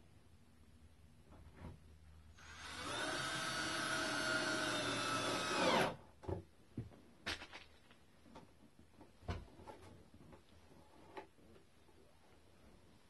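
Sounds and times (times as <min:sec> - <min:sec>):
cordless drill driving screw: 0:02.4 - 0:06.0.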